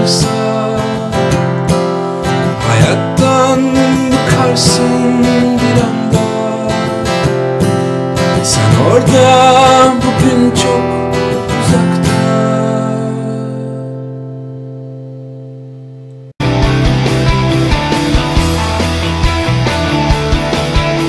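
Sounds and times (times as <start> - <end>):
strummed acoustic guitar music: 0.0 - 21.0.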